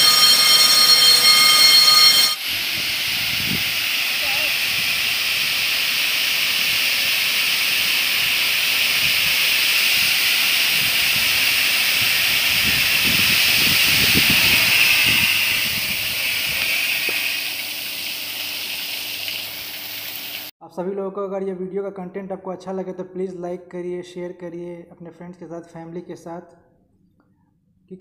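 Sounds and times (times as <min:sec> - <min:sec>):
loud hiss of water spray: 0:02.4 - 0:20.5.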